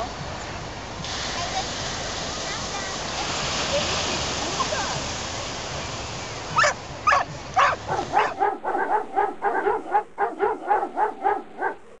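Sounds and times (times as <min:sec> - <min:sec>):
surf washing: 0:00.0 - 0:11.6
dog barking: 0:06.6 - 0:12.0.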